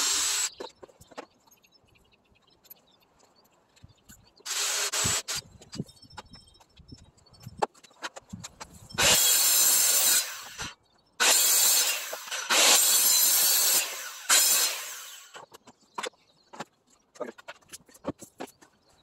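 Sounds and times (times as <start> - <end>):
circular saw cutting wood: 0.0 - 0.6, 4.5 - 5.4, 9.0 - 15.4.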